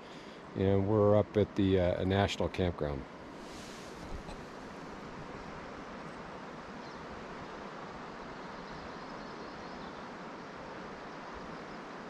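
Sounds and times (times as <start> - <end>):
river water rushing: 3.1 - 12.0.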